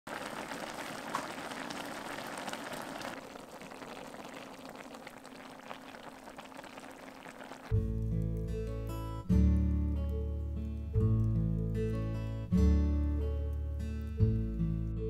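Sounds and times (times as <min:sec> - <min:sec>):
stew bubbling in a pot: 0:00.1 - 0:09.0.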